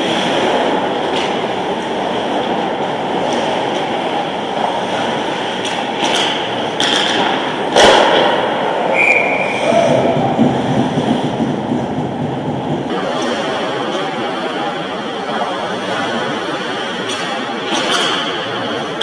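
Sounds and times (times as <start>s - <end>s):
skating rush: 0.0s - 19.0s
stick hitting puck: 5.6s - 8.5s, 17.1s - 18.3s
players shouting: 8.9s - 10.6s.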